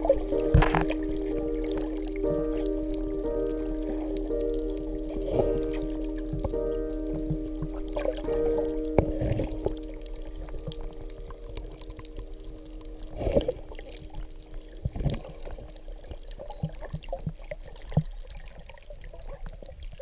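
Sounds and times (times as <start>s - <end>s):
steady low tone: 0.0s - 17.6s
underwater bubbling of exhaled breath: 0.0s - 20.0s.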